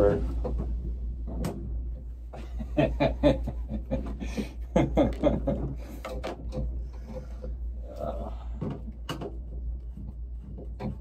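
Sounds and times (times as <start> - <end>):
steady low hum: 0.0 - 11.0
people laughing: 2.4 - 6.0.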